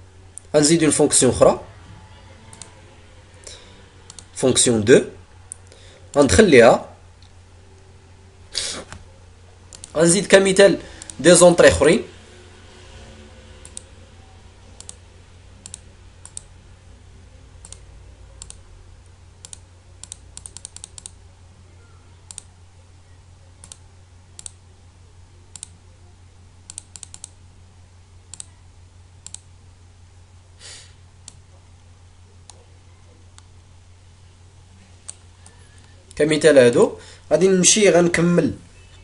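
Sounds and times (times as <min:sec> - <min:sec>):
low electrical hum: 0:00.0 - 0:39.0
mouse and keyboard clicks: 0:04.1 - 0:04.3, 0:09.7 - 0:10.0, 0:13.6 - 0:13.9, 0:14.8 - 0:15.0, 0:17.6 - 0:17.8, 0:18.4 - 0:18.6, 0:19.4 - 0:21.2, 0:22.3 - 0:22.5, 0:23.6 - 0:23.8, 0:24.4 - 0:24.6, 0:25.5 - 0:25.8, 0:26.7 - 0:27.4, 0:28.3 - 0:28.5, 0:29.2 - 0:29.4.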